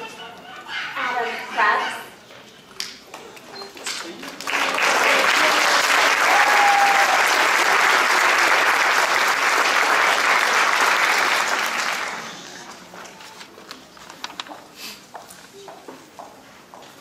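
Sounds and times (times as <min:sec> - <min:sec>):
audience applauding: 0:04.1 - 0:12.4.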